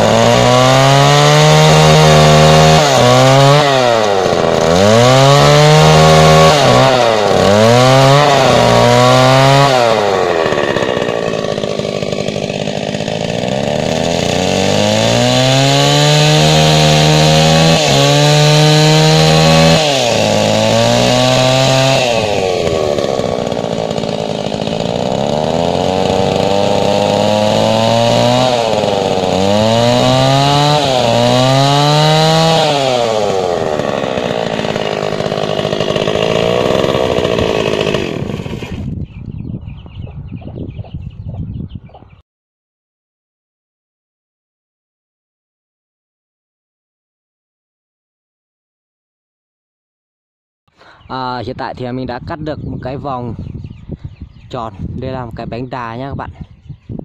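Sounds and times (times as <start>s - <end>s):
chainsaw cutting wood: 0.0s - 39.0s.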